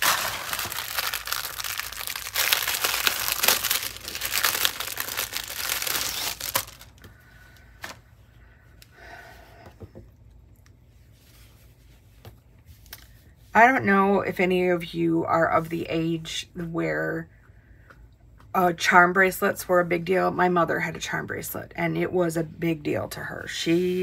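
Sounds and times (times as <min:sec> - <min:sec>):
cloth rustling: 0:00.0 - 0:07.0
plastic bag crinkling: 0:00.0 - 0:07.1.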